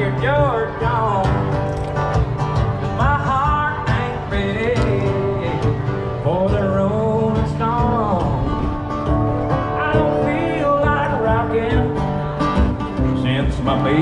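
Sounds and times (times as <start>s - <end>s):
guitar strumming: 0.0s - 14.0s
person singing: 9.4s - 14.0s.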